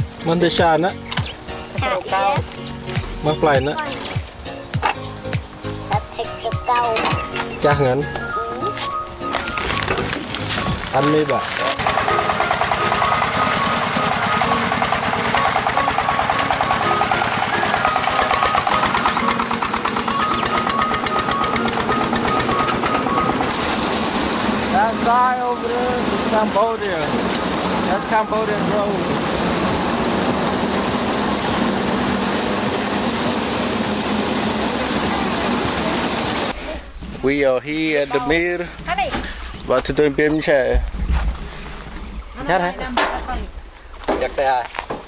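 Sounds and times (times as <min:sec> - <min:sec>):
tractor engine knocking rapidly: 0:11.5 - 0:36.5.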